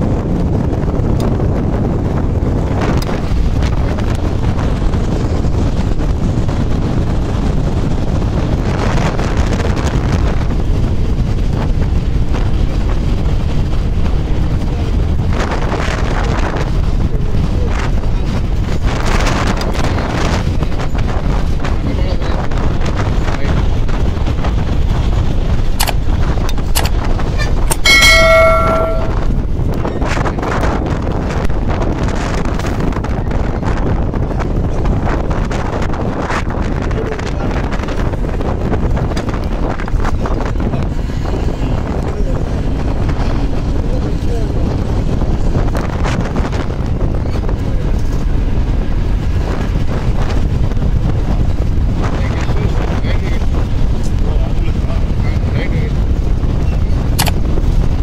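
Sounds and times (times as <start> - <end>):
bus rumbling: 0.0 - 58.0
wind buffeting microphone: 0.0 - 58.0
brief ringing tone: 27.7 - 29.3.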